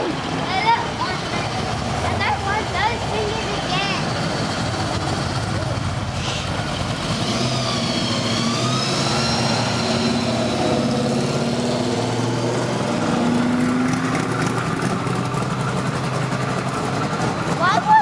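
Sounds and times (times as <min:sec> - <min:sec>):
cars driving slowly past: 0:00.0 - 0:18.0.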